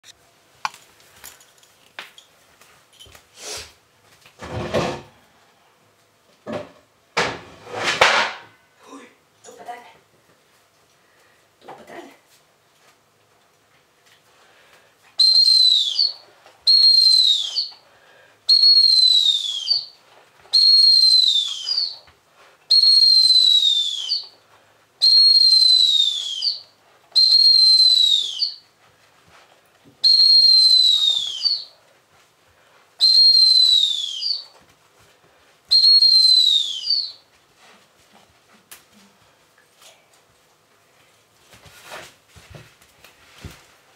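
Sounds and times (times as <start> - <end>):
dog training whistle blasts: 15.2 - 17.7, 18.5 - 19.9, 20.5 - 22.0, 22.7 - 24.3, 25.0 - 26.6, 27.2 - 28.6, 30.0 - 31.7, 33.0 - 34.4, 35.7 - 37.2.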